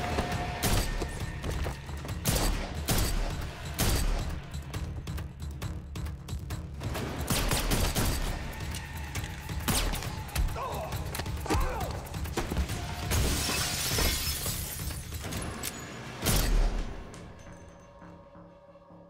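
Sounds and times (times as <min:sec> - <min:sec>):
glass shattering: 0:13.1 - 0:15.8.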